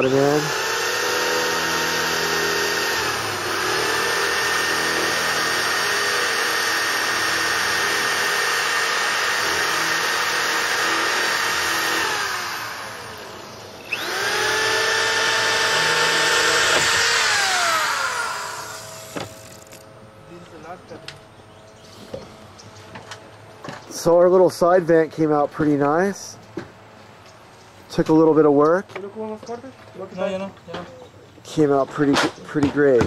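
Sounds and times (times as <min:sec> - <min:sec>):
power tool whining: 0:00.0 - 0:20.0.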